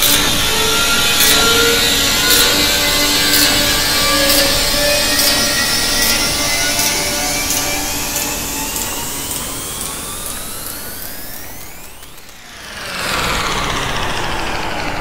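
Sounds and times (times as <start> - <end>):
electronic noise drone: 0.0 - 15.0.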